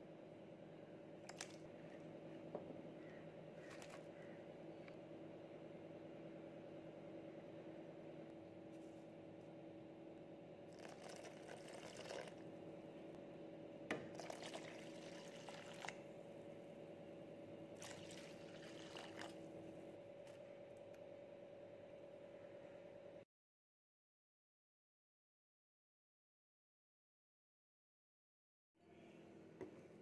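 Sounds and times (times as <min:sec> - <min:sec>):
faint steady hum: 0:00.0 - 0:23.3
water pouring into a pan: 0:10.8 - 0:12.4.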